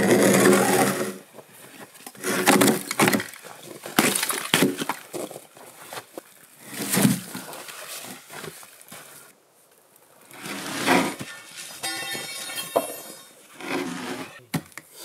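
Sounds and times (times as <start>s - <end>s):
hand tools working a log: 0.0s - 6.0s, 10.3s - 15.0s.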